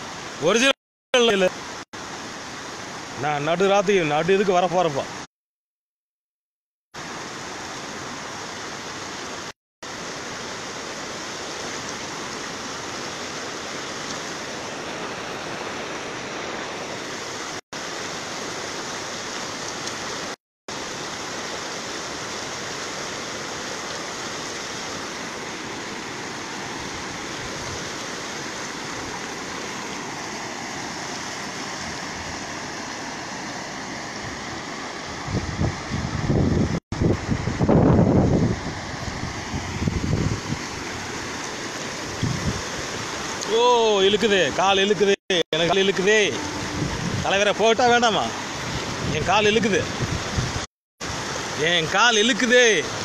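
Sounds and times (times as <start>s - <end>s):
river floodwater roaring: 0.0s - 5.2s, 7.0s - 53.0s.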